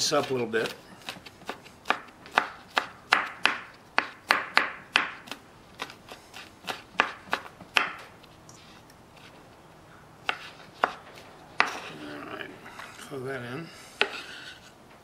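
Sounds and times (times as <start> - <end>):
knife chopping on wooden board: 0.0 - 8.1, 10.2 - 11.9, 14.0 - 14.7.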